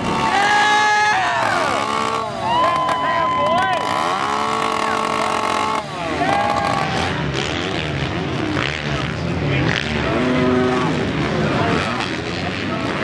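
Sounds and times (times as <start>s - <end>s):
crowd cheering and shouting: 0.0s - 7.3s
motorbike engines revving: 0.0s - 13.0s.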